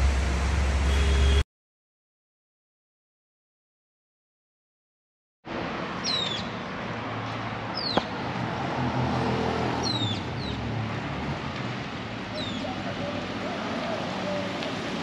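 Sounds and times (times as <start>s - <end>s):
traffic rumble: 5.5s - 15.0s
vehicle passing: 5.6s - 15.0s
bird chirping: 6.0s - 6.6s, 7.7s - 8.1s, 9.8s - 10.6s, 12.3s - 12.8s.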